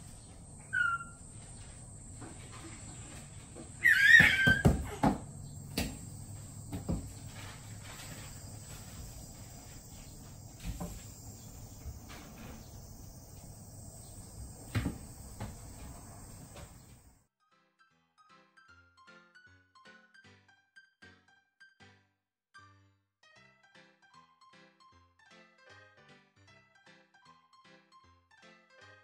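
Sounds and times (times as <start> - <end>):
high insect drone: 0.0 - 17.2
baby squealing: 0.7 - 1.2, 3.8 - 5.1.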